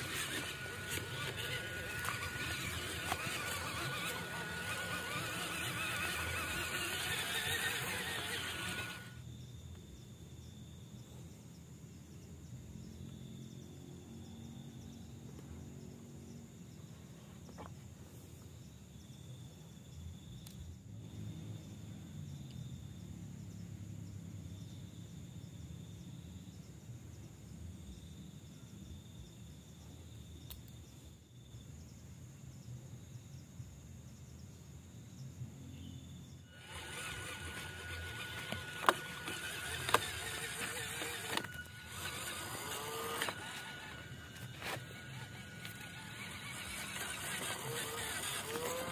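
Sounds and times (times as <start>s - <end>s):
toy truck electric motor whine: 0.0s - 9.3s, 36.4s - 48.9s
lower insect buzz: 12.2s - 48.9s
high-pitched insect drone: 35.9s - 48.9s.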